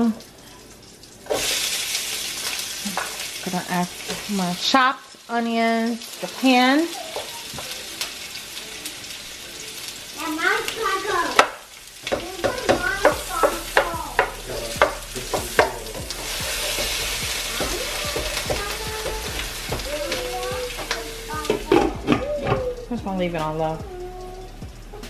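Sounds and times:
vegetables sizzling in a skillet: 0:00.0 - 0:25.0
spatula clicking and scraping pan: 0:02.4 - 0:03.3, 0:10.7 - 0:22.6.

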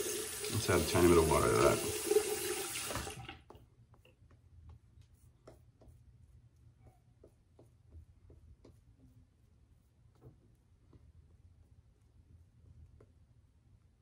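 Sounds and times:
shaving brush lathering: 0:00.0 - 0:03.2.

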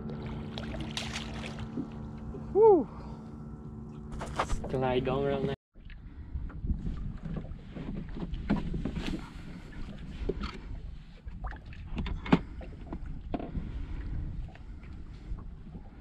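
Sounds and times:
water slapping against boat hull: 0:00.1 - 0:02.0
wind on microphone: 0:06.0 - 0:16.0.

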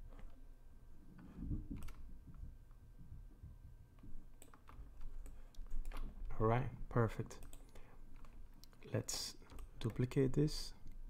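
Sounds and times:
low steady hum: 0:00.0 - 0:11.0
computer mouse clicks: 0:01.7 - 0:02.0, 0:04.4 - 0:06.2, 0:07.4 - 0:10.2.

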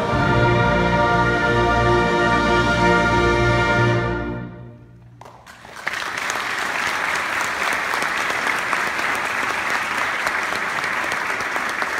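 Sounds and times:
audience applause: 0:05.0 - 0:11.9.

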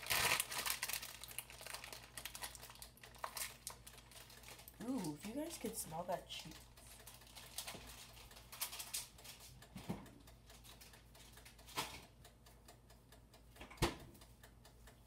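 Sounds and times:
plastic bag rustling: 0:00.0 - 0:05.2.

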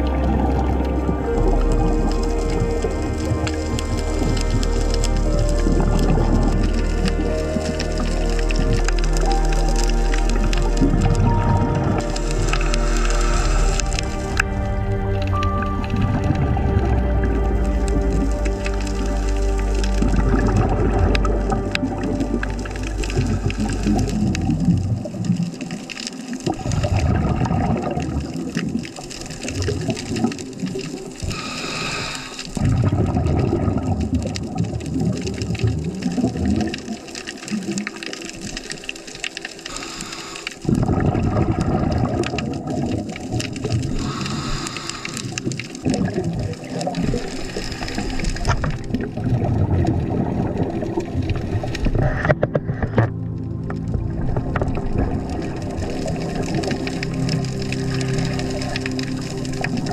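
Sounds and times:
exhaled bubbles rushing: 0:00.0 - 0:59.9
regulator inhale hiss: 0:12.6 - 0:13.9, 0:31.2 - 0:32.6, 0:39.7 - 0:40.7, 0:44.0 - 0:45.7, 0:47.2 - 0:48.5.

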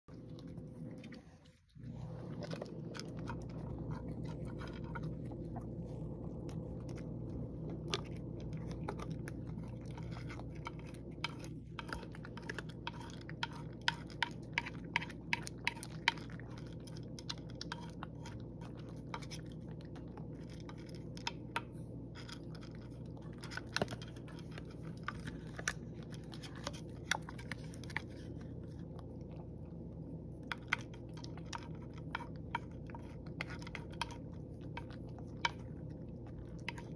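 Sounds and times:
steady low hum: 0:00.0 - 0:36.9
cat crunching dry kibble: 0:00.1 - 0:36.9.

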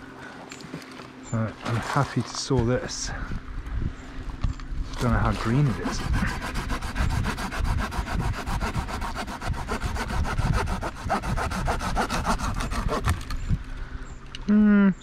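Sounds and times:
hand saw cutting branch: 0:05.0 - 0:13.4.

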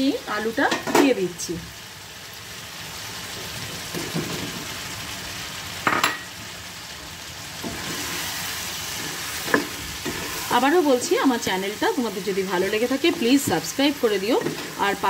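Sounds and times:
chicken sizzling in oil: 0:00.0 - 0:15.0
spatula stirring and scraping: 0:07.6 - 0:10.6, 0:12.9 - 0:15.0.

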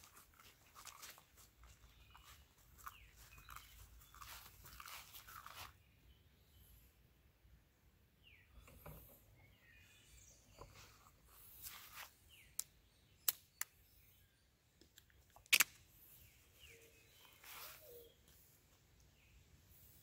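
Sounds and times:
bird chirps: 0:00.4 - 0:06.9, 0:16.1 - 0:19.9
sharp clicks: 0:12.5 - 0:13.8.

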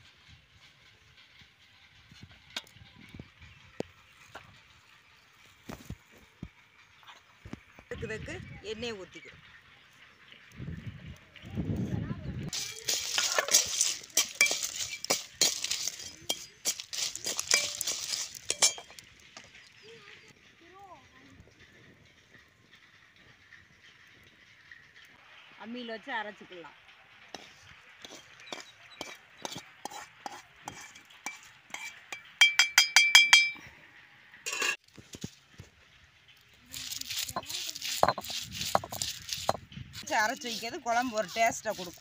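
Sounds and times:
oil sizzling: 0:12.5 - 0:20.3, 0:34.5 - 0:42.0
spices clinking and crackling in pan: 0:12.5 - 0:25.4, 0:27.3 - 0:33.6, 0:34.5 - 0:42.0
ringing spoon taps: 0:32.4 - 0:33.6.

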